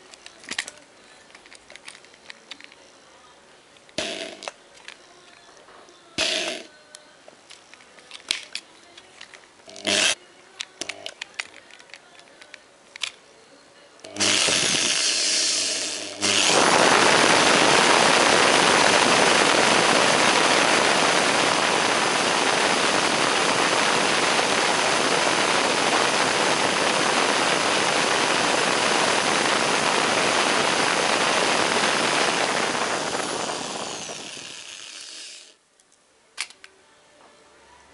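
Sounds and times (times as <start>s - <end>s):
electric drill spinning: 4.0s - 4.5s, 6.2s - 6.7s, 9.7s - 10.2s, 14.1s - 35.6s
cassette tape rewinding fast: 14.2s - 35.6s.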